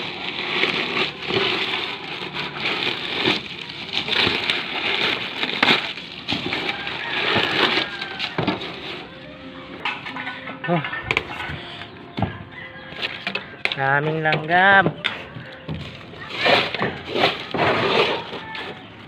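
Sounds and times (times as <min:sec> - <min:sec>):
leaves and muck crackling and rustling: 0:00.0 - 0:09.0.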